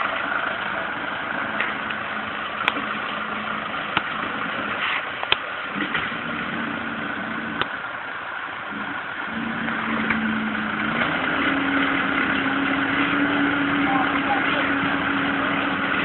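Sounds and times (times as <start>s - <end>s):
tractor diesel engine running: 0.0s - 16.0s.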